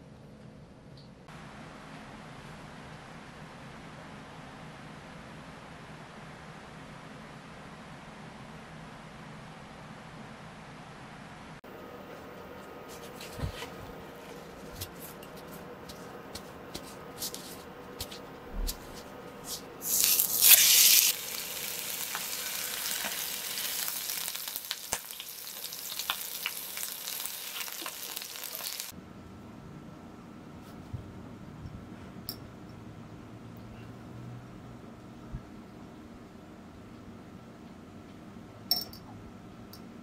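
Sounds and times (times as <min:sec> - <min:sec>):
fish sizzling in oil: 0:19.8 - 0:28.9
hot oil popping: 0:19.8 - 0:28.9.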